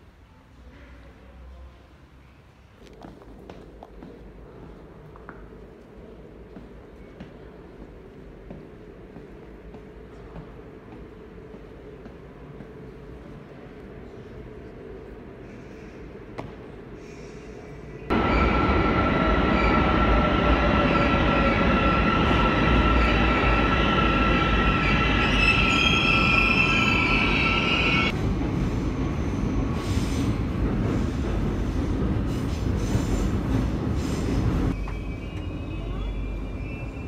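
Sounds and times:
train rumbling: 2.8 - 37.0
high wheel squeal: 18.1 - 28.1, 34.7 - 37.0.

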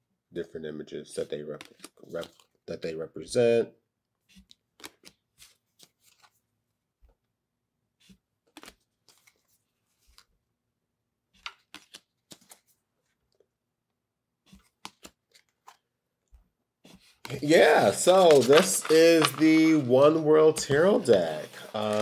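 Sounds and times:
cards being flipped: 1.6 - 2.6, 4.3 - 6.4, 8.0 - 10.3, 11.3 - 13.4, 14.4 - 15.9, 16.8 - 22.0.

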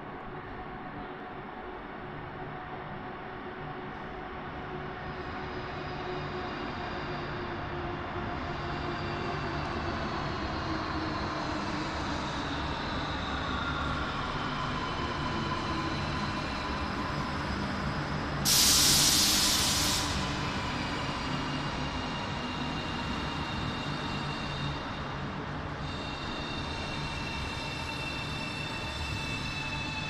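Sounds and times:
train rumbling to a stop: 0.0 - 30.0
air brakes hissing: 18.4 - 20.4.

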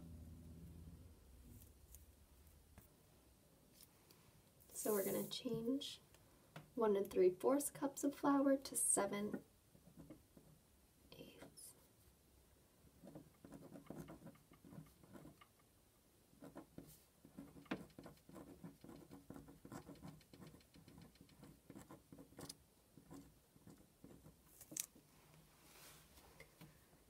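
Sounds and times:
pen scratching on paper: 13.0 - 15.5, 16.4 - 24.4.

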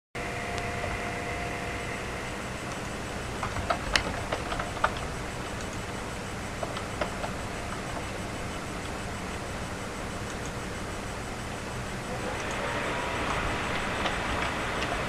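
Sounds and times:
steady background hiss: 0.2 - 15.0
sharp clicks of controls: 2.6 - 10.9, 12.2 - 15.0.

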